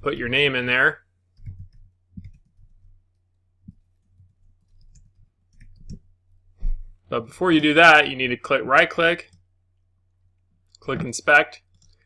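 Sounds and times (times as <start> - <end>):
keyboard keys clicking: 1.4 - 2.8.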